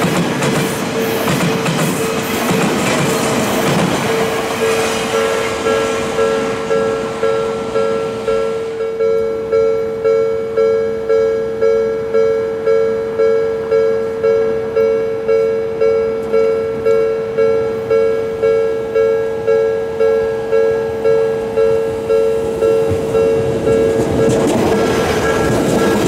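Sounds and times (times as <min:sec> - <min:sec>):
level crossing bell ringing: 0:04.2 - 0:24.5.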